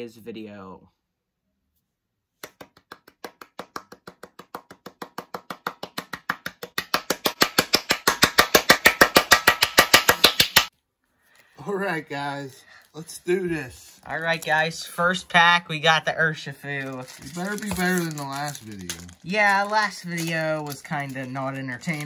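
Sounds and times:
hand claps: 2.4 - 10.7.

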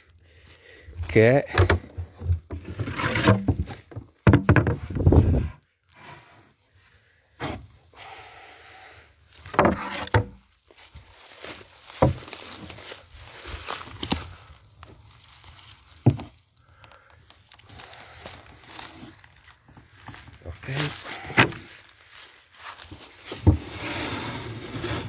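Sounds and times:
knocks on wooden crate: 3.3 - 5.1
rustling: 10.3 - 25.0.

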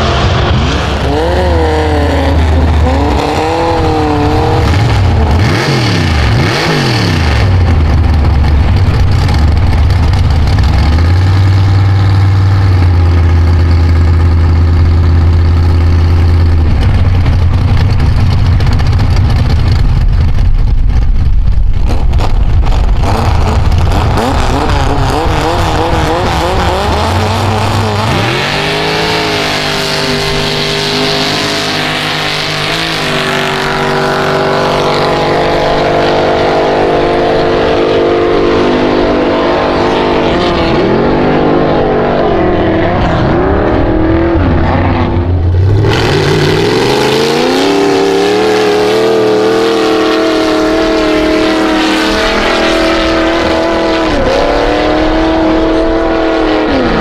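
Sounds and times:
truck engines idling and revving: 0.0 - 57.0.

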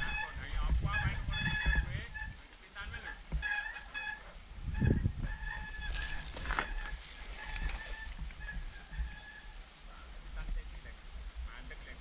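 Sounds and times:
bike rumbling over dirt: 5.5 - 9.4.

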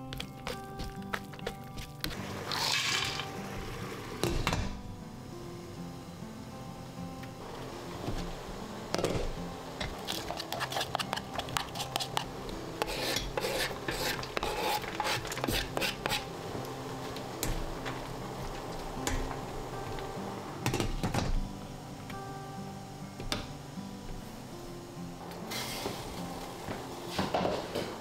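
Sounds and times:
vegetables clattering into steamer basket: 0.0 - 4.8, 8.0 - 12.3, 27.1 - 28.0
soft background music: 0.0 - 28.0.

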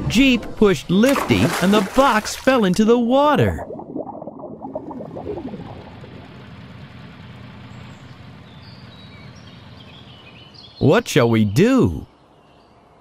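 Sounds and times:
cartoon water bubbling: 1.1 - 6.5
low vehicle engine hum: 3.8 - 13.0.

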